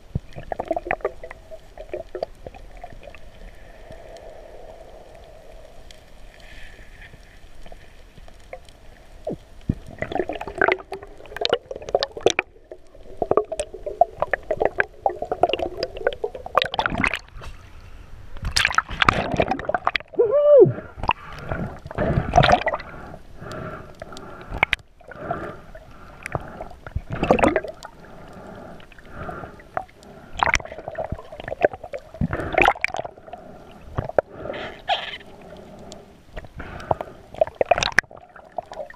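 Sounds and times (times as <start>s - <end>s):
muffled underwater gurgling: 19.0s - 38.9s.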